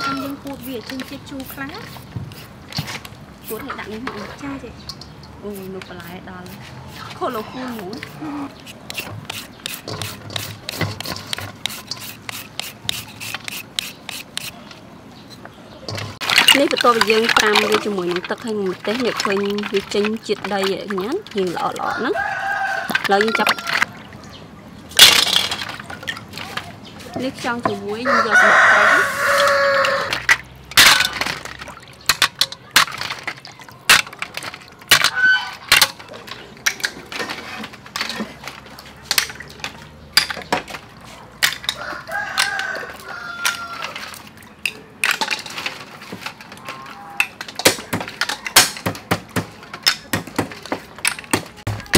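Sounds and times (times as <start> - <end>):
rooster crowing: 0.0 - 0.4, 21.8 - 23.9, 28.0 - 30.2, 35.1 - 35.6, 41.7 - 44.0
vegetables scraped on wooden board: 0.0 - 4.4, 5.5 - 14.6.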